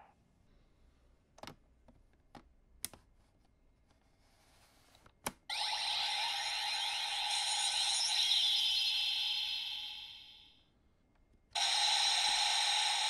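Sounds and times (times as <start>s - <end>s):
toy belt electronic sound effect: 5.5s - 10.5s, 11.6s - 13.0s.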